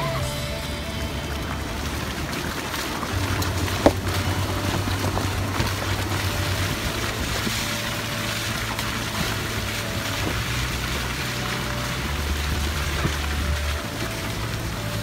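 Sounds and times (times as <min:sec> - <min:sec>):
car engine hum: 0:00.0 - 0:15.0
tyre and wind noise: 0:00.0 - 0:15.0.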